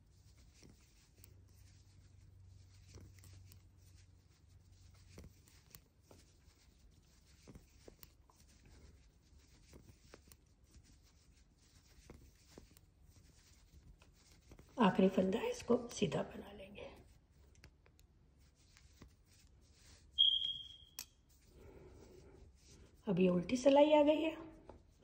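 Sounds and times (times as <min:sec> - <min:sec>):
knitting needles clicking: 0:04.9 - 0:10.8, 0:17.4 - 0:18.1.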